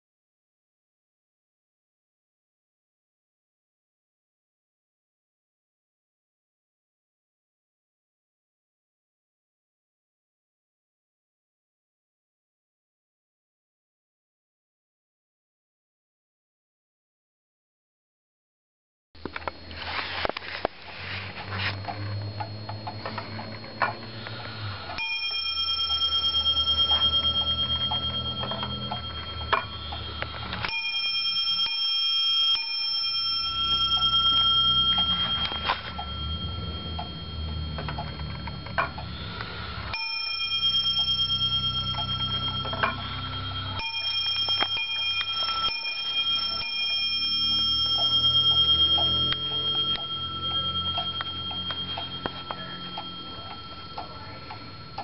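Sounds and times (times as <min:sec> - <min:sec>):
wall clock striking bell: 0:20.8 - 0:55.0
clock ticking: 0:24.9 - 0:55.0.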